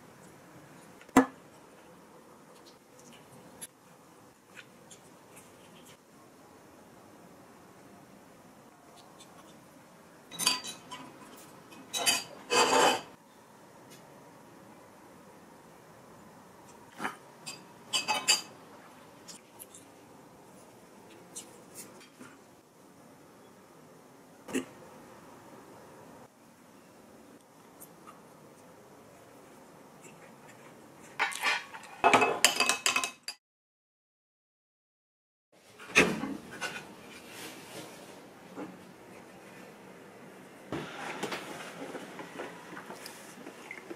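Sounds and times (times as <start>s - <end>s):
cutlery scraping dishes: 10.3s - 13.2s, 31.2s - 33.2s.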